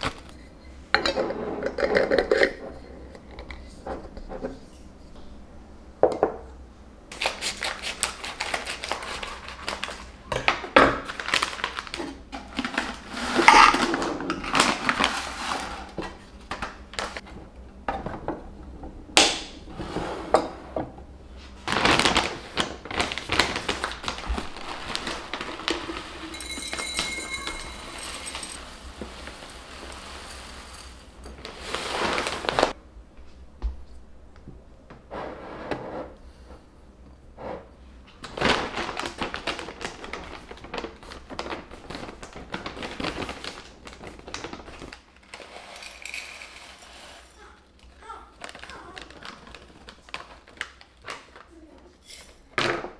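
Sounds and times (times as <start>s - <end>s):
glass jars clinking: 25.7s - 28.6s.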